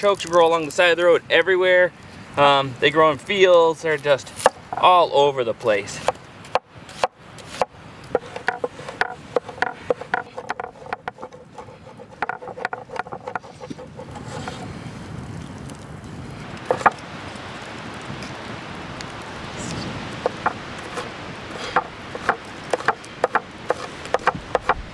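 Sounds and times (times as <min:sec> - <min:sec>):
steady rushing noise: 0:00.0 - 0:24.9
knife chopping on wooden board: 0:06.0 - 0:14.6, 0:21.6 - 0:24.9.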